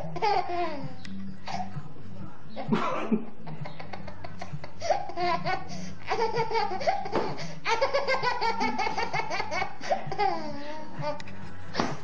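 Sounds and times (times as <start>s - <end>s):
baby giggling: 0.0s - 1.7s, 3.4s - 11.3s.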